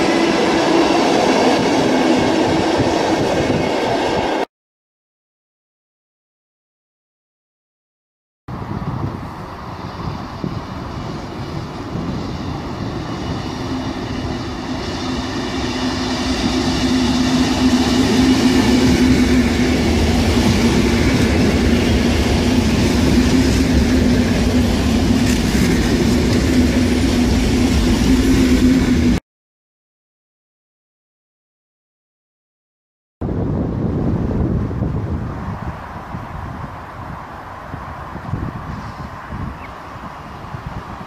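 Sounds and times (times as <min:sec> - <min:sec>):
electric train passing: 0:00.0 - 0:04.5, 0:08.5 - 0:29.2, 0:33.2 - 0:41.0
train wheels rumbling on rails: 0:00.0 - 0:04.5, 0:08.5 - 0:29.2.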